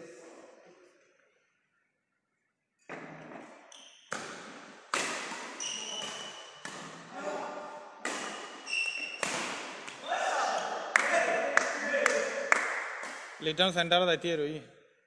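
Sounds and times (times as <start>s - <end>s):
shoes squeaking on court: 2.8s - 7.0s, 8.2s - 10.0s
racket hitting shuttlecock: 4.1s - 7.1s, 8.0s - 11.9s, 12.6s - 13.4s.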